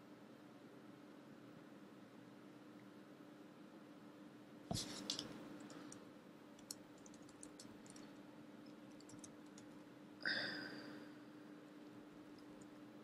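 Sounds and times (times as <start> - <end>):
faint steady hum: 0.0 - 13.0
computer keyboard typing: 6.6 - 9.8.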